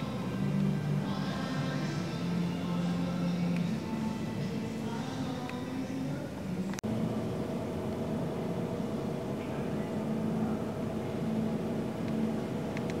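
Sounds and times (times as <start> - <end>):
light plane engine and propeller: 6.8 - 13.0.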